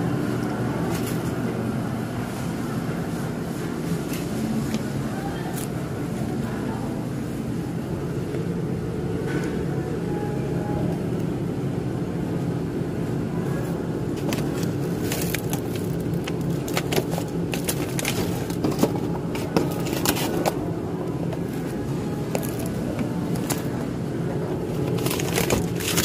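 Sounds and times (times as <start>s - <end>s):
steady low hum: 0.0s - 26.0s
plastic packaging crinkling: 14.2s - 20.6s, 24.7s - 26.0s.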